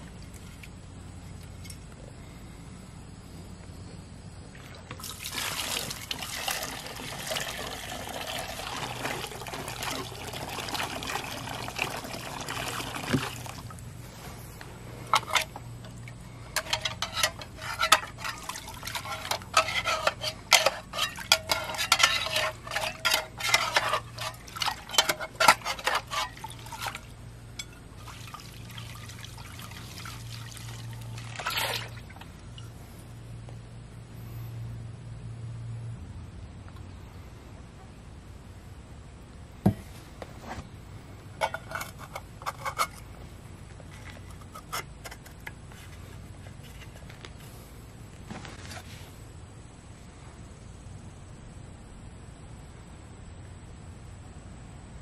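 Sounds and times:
liquid pouring and splashing: 4.7s - 13.8s, 17.6s - 32.3s
metal cup scrubbed in liquid: 5.1s - 13.6s, 16.5s - 30.6s, 31.2s - 32.0s
metal clinks and knocks: 15.1s - 27.8s.

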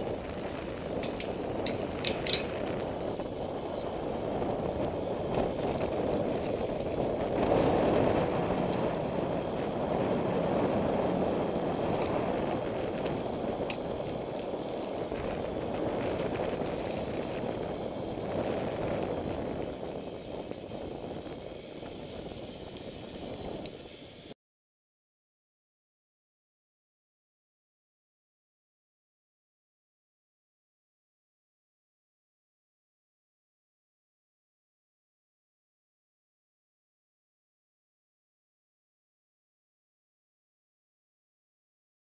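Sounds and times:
wind buffeting microphone: 0.0s - 24.3s.

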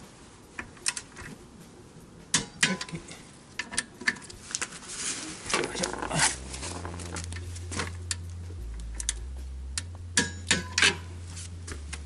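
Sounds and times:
wrench clicking on metal: 3.6s - 4.4s.

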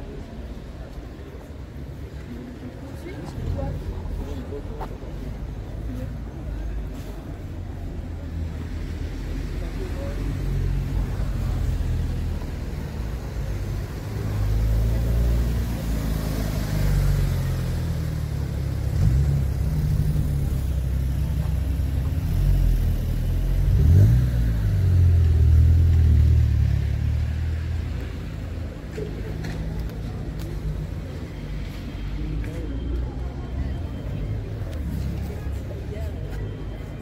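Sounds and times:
car engines rumbling: 0.0s - 37.0s
engine revving: 22.5s - 27.3s.

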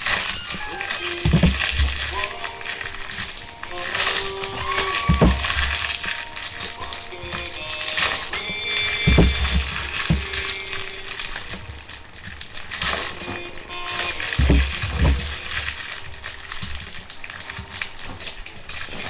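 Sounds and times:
faint background music: 0.0s - 19.0s
foil wrappers crinkling: 0.0s - 19.0s
dull thumps on table: 9.1s - 10.4s, 14.4s - 15.3s.

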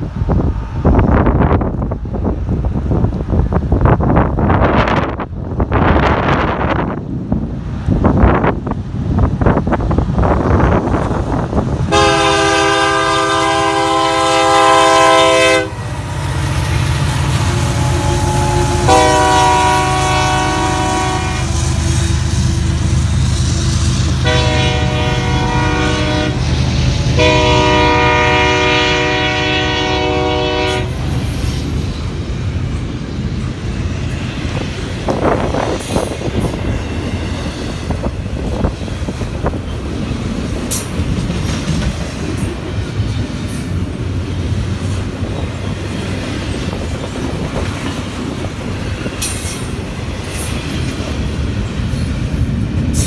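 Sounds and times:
train rumbling past: 0.0s - 53.0s
locomotive air horn blasts: 11.9s - 16.3s, 17.2s - 22.8s, 24.0s - 26.5s, 27.1s - 31.2s.

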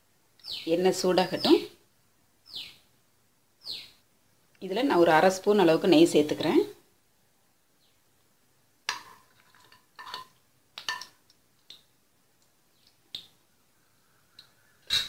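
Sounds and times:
spoon tapping metal pan: 8.9s - 9.2s, 10.0s - 11.2s.

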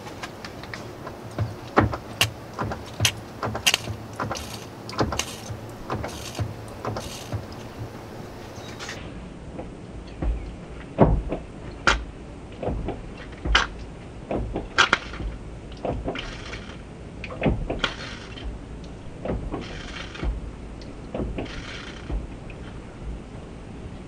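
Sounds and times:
irregular clicks and knocks: 0.0s - 23.2s
fluid squirting with a hiss: 1.6s - 9.0s.

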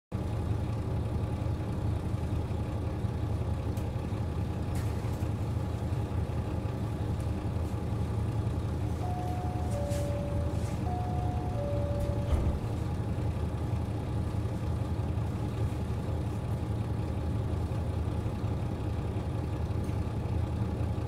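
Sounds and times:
diesel railcar engine idling: 0.1s - 21.0s
high beeping tone: 8.8s - 12.8s.

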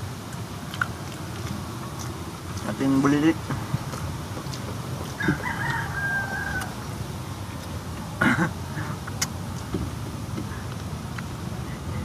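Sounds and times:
rooster crowing: 5.1s - 6.9s.

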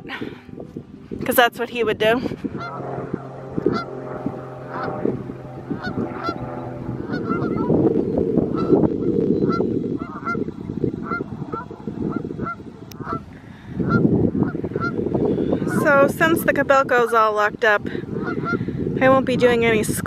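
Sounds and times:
low rushing noise: 2.0s - 15.8s
geese honking: 2.4s - 15.9s, 18.0s - 18.6s.

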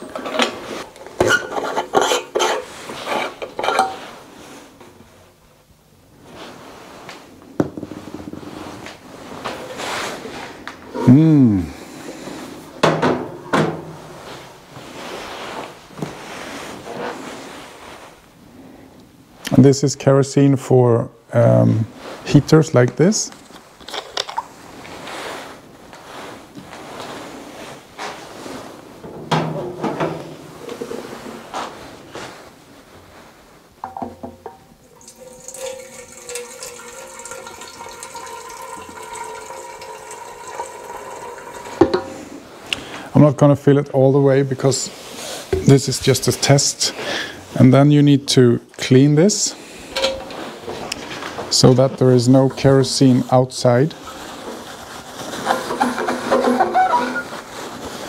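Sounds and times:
handling noise: 23.3s - 36.6s
metal tank clunks: 29.0s - 30.4s, 50.0s - 50.4s
liquid pouring into metal tank: 34.5s - 42.2s.

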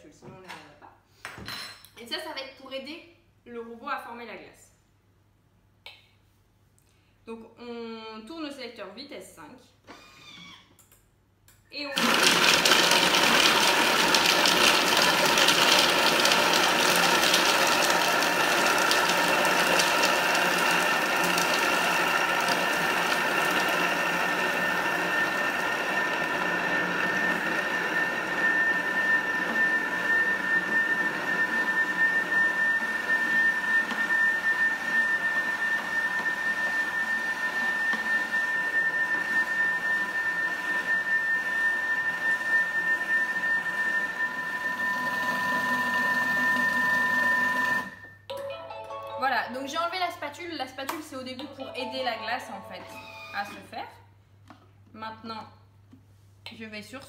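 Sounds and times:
blender grinding frozen fruit: 12.0s - 48.1s, 52.9s - 53.6s.

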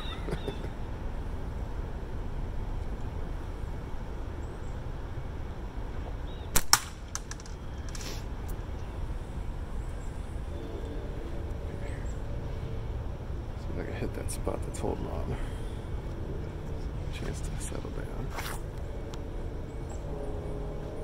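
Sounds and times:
steady low rumble: 0.0s - 21.0s
slingshot cracks: 6.6s - 8.1s.

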